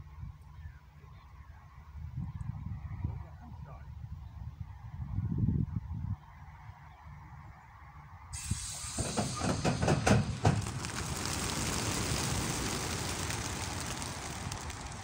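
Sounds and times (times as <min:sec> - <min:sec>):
pigeon wings beating: 0:09.8 - 0:15.0.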